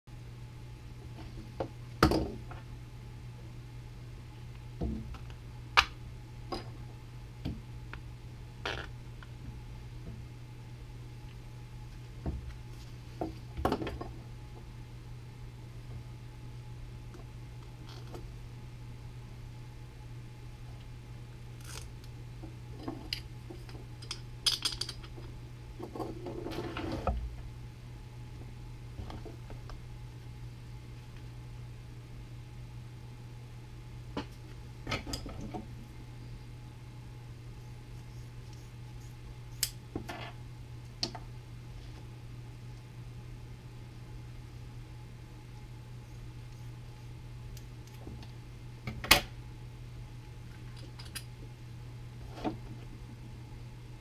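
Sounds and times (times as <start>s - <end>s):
low steady hum: 0.1s - 54.0s.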